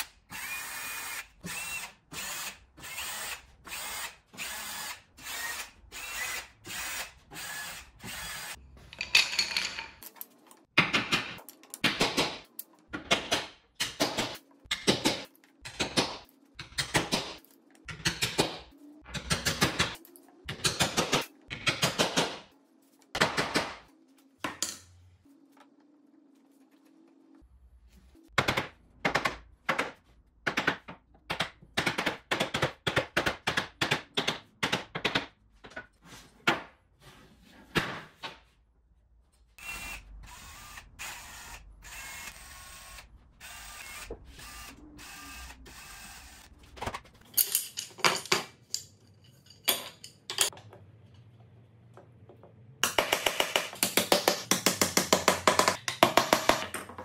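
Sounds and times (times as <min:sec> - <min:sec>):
cordless drill boring into wood: 0:39.6 - 0:46.4.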